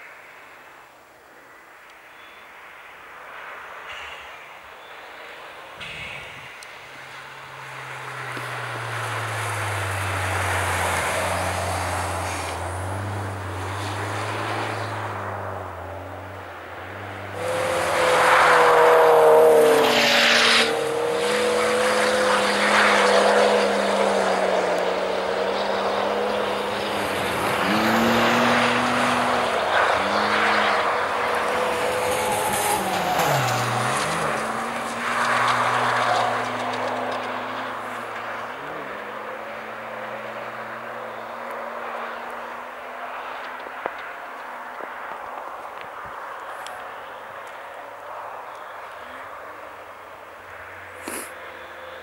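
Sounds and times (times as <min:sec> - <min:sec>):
car engine revving: 0:05.8 - 0:42.6
tyres hissing through snow: 0:12.0 - 0:12.8, 0:51.0 - 0:51.4.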